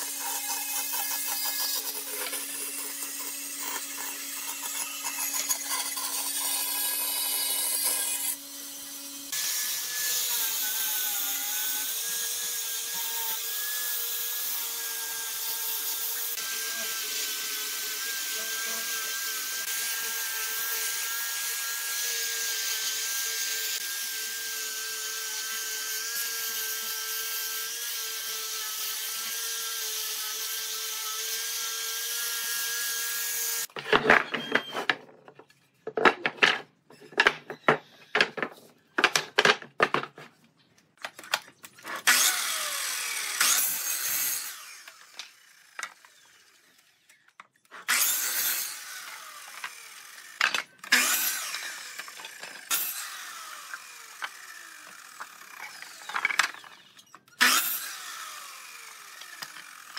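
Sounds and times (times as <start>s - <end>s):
power tool motor whine: 41.9s - 47.2s, 47.9s - 59.9s.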